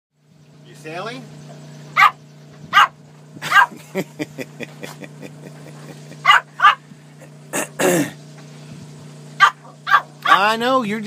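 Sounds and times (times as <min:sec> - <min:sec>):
small dog yapping: 0:02.0 - 0:03.8, 0:06.2 - 0:06.8, 0:09.4 - 0:10.6.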